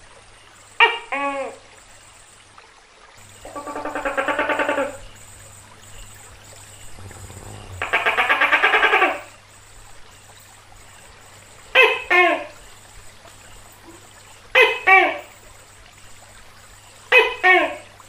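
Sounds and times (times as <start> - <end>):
gecko calling: 3.4 - 9.3.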